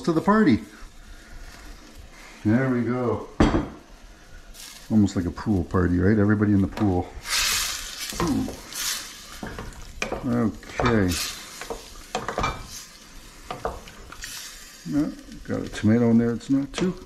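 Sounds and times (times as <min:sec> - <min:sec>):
light sizzle: 0:00.0 - 0:17.0
spoon stirring and scraping pot: 0:06.8 - 0:14.8.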